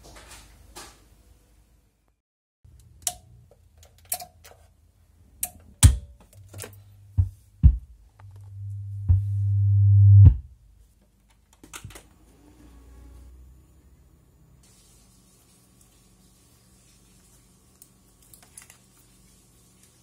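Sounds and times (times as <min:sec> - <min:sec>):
clicks and knocks of hardware: 0:02.8 - 0:04.7
low hum: 0:06.6 - 0:10.6.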